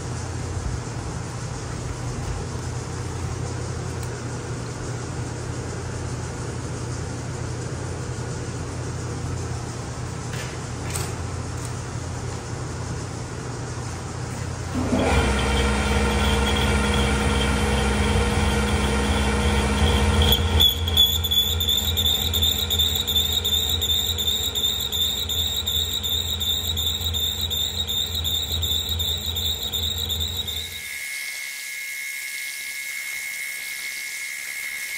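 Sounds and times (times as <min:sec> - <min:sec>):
boring machine drive hum: 0:00.0 - 0:30.9
high cutter whine: 0:14.6 - 0:34.9.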